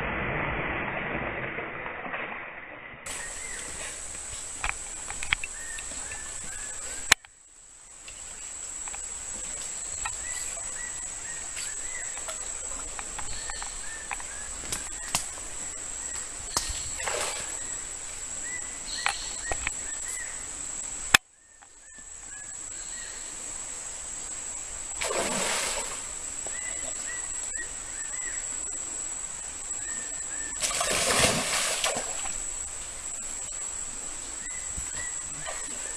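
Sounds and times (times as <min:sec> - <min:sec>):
fish splashing in stream: 0:24.9 - 0:26.2, 0:30.6 - 0:32.6.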